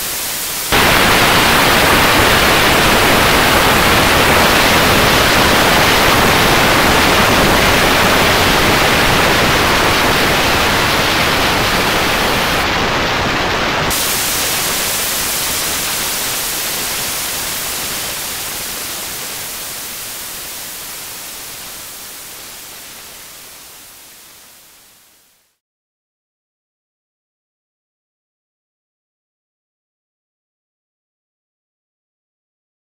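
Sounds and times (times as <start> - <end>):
static hiss: 0.0 - 25.6.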